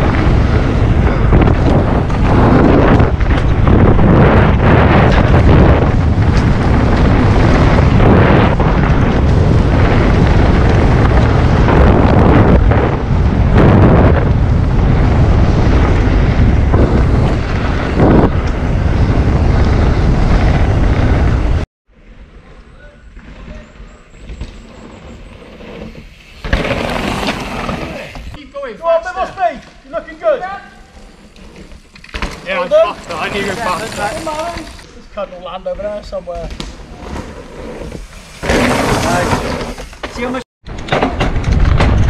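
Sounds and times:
wind buffeting microphone: 0:00.0 - 0:21.6
bike knocking and rattling: 0:29.1 - 0:34.9, 0:35.8 - 0:42.0.

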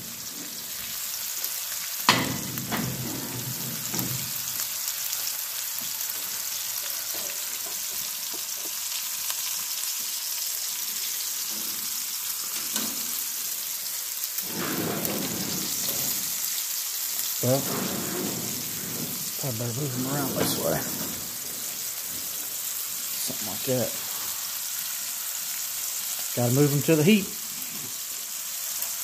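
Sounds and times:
steaks sizzling in a skillet: 0:00.0 - 0:29.0
skillet clanking on stove top: 0:02.1 - 0:04.6.

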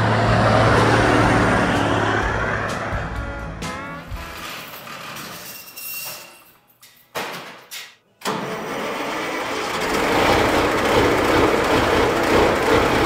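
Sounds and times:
diesel truck engine starting: 0:00.0 - 0:04.3, 0:08.2 - 0:13.0.

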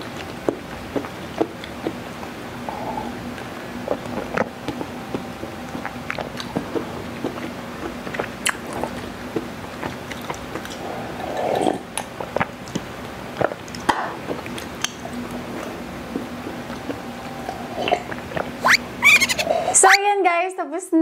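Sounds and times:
person gulping and swallowing: 0:00.0 - 0:18.8
mouth and lip clicks: 0:03.9 - 0:10.8, 0:11.9 - 0:15.0, 0:17.9 - 0:19.5.

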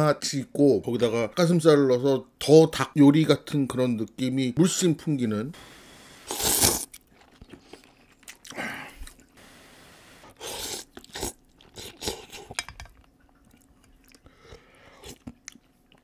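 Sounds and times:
person slurping noodles: 0:06.2 - 0:06.9, 0:10.3 - 0:12.5
chewing: 0:06.7 - 0:09.4, 0:10.6 - 0:16.0.

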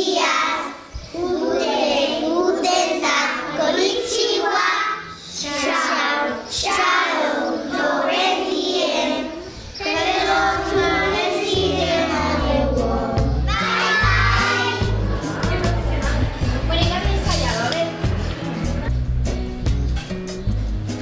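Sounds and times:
young children singing: 0:00.0 - 0:16.8.

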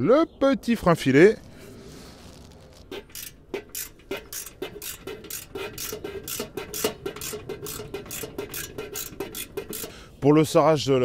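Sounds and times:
screwdriver turning screw: 0:02.4 - 0:10.0.

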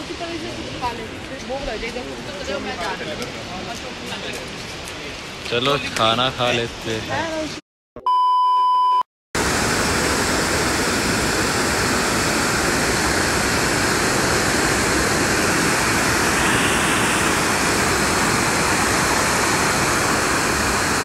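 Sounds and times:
mountain stream rushing over boulders: 0:09.4 - 0:21.0.

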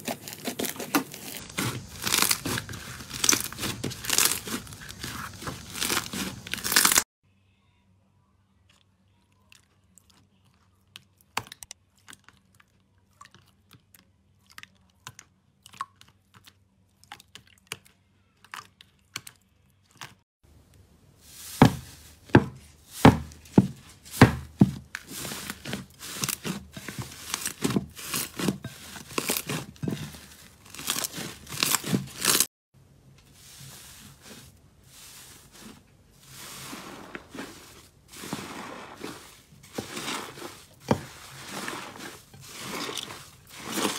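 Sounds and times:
slime crackling: 0:00.0 - 0:07.0, 0:25.0 - 0:32.5, 0:35.1 - 0:43.9.

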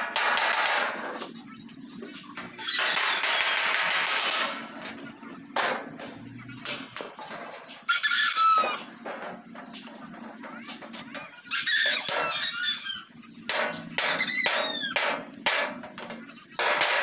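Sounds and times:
hammer tapping sheet metal: 0:00.0 - 0:01.1, 0:13.5 - 0:17.0
rooster crowing: 0:07.8 - 0:09.0, 0:11.5 - 0:13.1
sharp knocks: 0:13.4 - 0:17.0.

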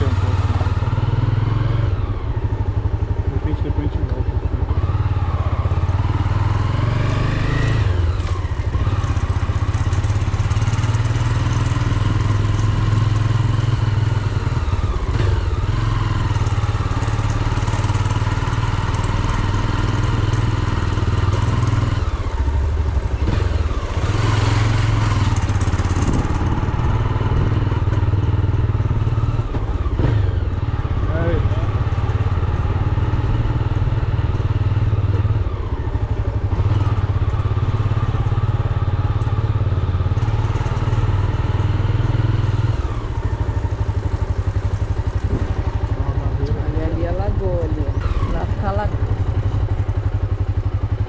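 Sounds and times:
vehicle engine rumbling: 0:00.0 - 0:51.0.

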